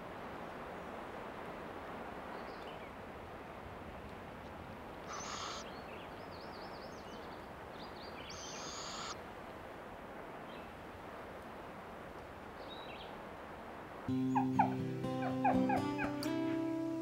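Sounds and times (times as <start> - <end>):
owlets begging screeches: 5.1 - 5.6, 8.4 - 9.2.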